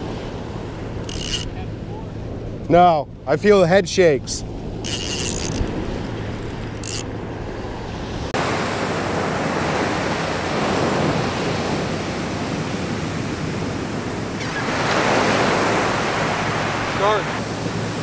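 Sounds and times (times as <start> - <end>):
ocean surf washing on beach: 0.0 - 18.0
wave breaking: 4.3 - 18.0.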